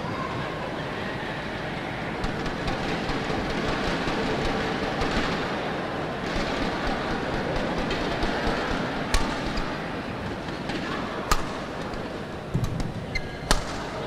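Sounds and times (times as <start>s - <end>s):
arena crowd hum: 0.0s - 14.0s
racket hitting shuttlecock: 9.1s - 14.0s.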